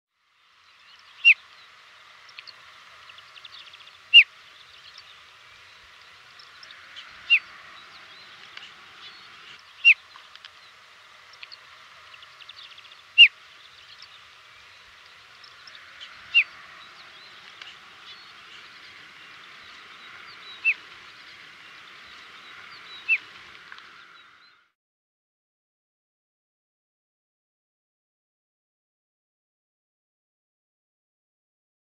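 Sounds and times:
steady background hiss: 0.2s - 24.8s
lark chirping calls: 0.7s - 24.6s.

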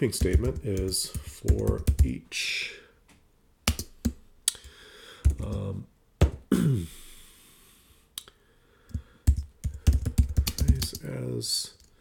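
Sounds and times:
computer keyboard keystrokes: 0.2s - 2.1s, 3.7s - 4.6s, 5.2s - 5.6s, 8.9s - 11.1s
short wordless voice sounds: 5.4s - 5.9s.

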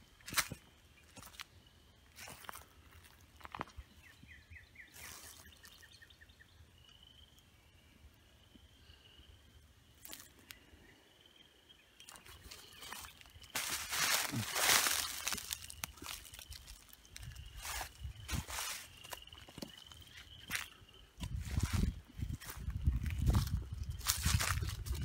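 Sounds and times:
small bird chirping: 0.0s - 25.0s
thin high bird calls: 0.1s - 22.4s
footsteps in dry leaves: 2.1s - 3.7s, 4.9s - 5.9s, 12.1s - 25.0s.

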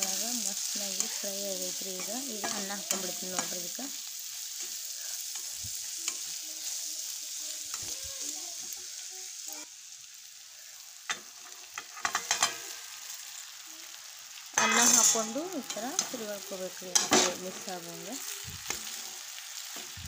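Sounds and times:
food sizzling in oil: 0.0s - 20.0s
spatula scraping pan: 0.1s - 8.9s, 11.1s - 12.8s, 14.6s - 20.0s.

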